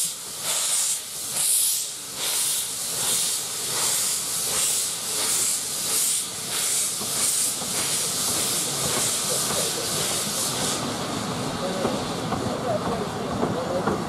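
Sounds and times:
steam locomotive hissing: 0:00.0 - 0:14.0.

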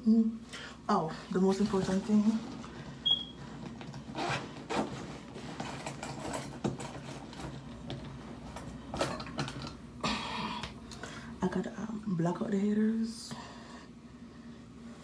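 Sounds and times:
rustling and rubbing: 0:04.0 - 0:07.6.

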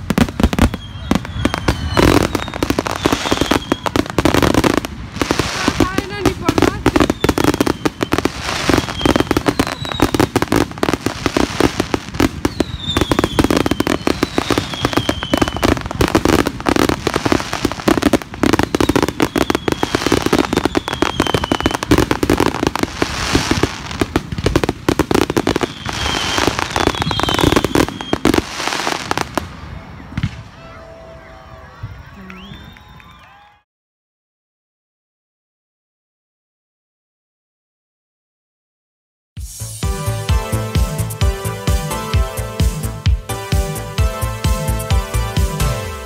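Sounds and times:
fireworks bangs and crackles: 0:00.0 - 0:31.1
whistling fireworks: 0:00.0 - 0:33.6.

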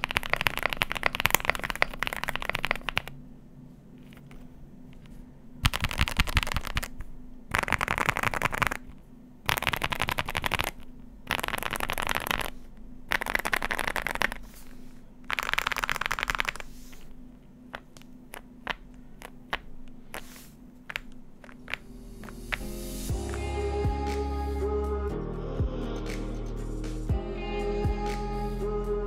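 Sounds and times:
mechanical keyboard keystrokes: 0:00.0 - 0:03.1, 0:05.6 - 0:08.9.

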